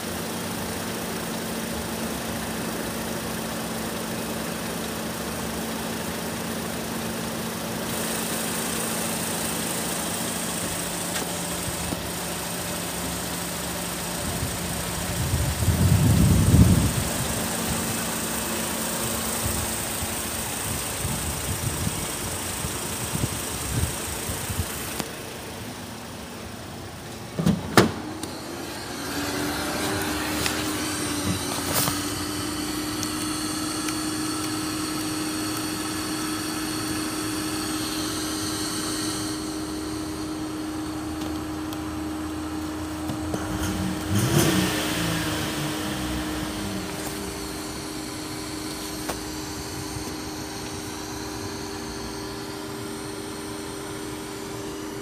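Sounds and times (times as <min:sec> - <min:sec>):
car engine idling: 0:00.0 - 0:55.0
car door thudding: 0:27.2 - 0:28.3.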